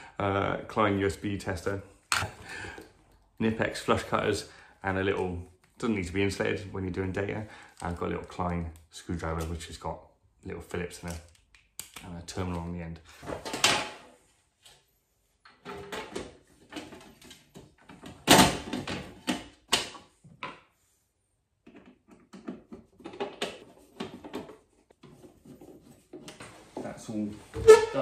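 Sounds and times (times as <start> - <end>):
plastic panels knocking and clicking: 15.5 - 20.7, 21.6 - 25.4.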